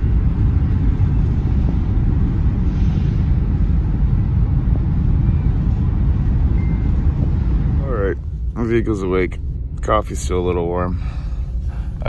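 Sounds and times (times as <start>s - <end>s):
ship noise: 0.0s - 12.0s
wind rumble: 0.0s - 12.0s.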